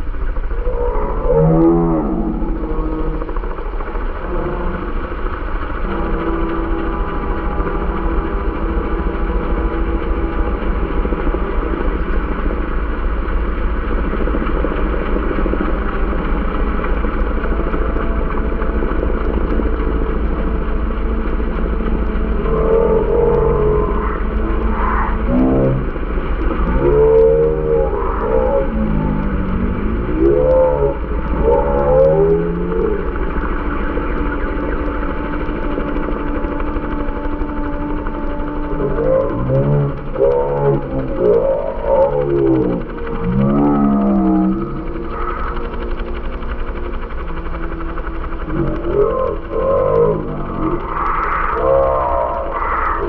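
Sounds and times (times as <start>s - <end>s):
engine passing and droning: 0.0s - 53.0s.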